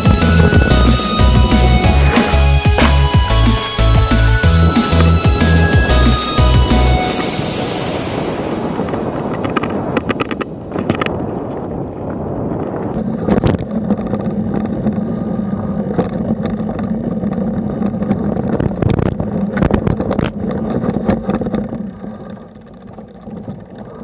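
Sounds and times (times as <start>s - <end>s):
bike rattles and knocks over bumps: 0.0s - 6.8s, 12.2s - 24.0s
steady low motor hum: 0.0s - 7.7s
tyres rolling over dirt: 0.0s - 24.0s.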